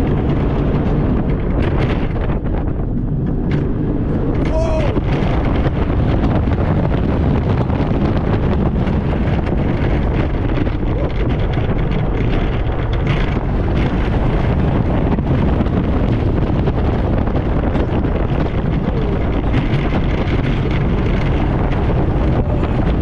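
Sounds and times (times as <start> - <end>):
roller coaster wheels clattering: 0.0 - 23.0
wind rushing over microphone: 0.0 - 23.0.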